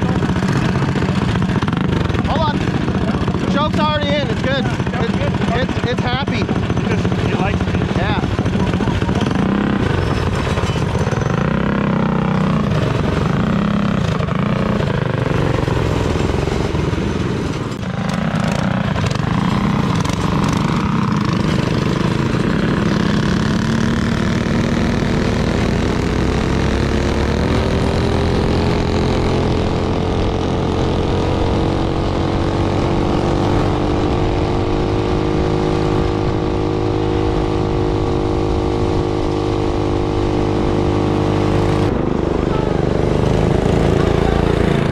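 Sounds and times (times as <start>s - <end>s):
small engine revving: 17.8s - 44.9s.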